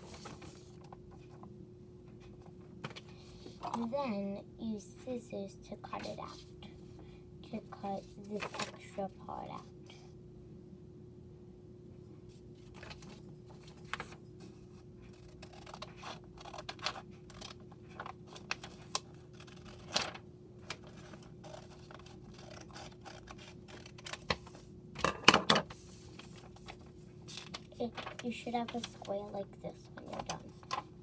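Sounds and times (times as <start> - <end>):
paper rustling: 0.0 - 0.8, 8.2 - 8.8, 12.6 - 24.6, 25.7 - 29.3
scissors snipping paper: 15.1 - 24.4.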